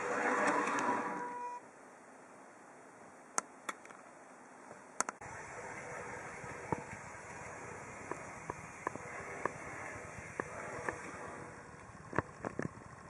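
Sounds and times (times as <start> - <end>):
model tram motor hum: 5.2 - 13.0
wheel clicks on track: 5.2 - 13.0.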